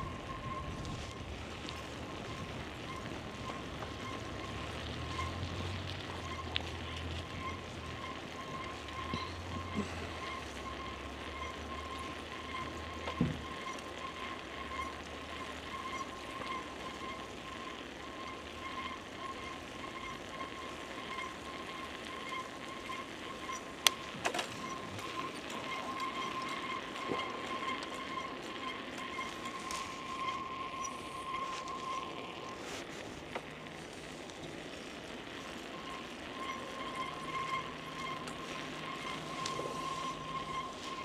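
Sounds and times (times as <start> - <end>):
sharp bicycle clicks: 0.0 - 32.0
bicycle whine: 0.0 - 41.0.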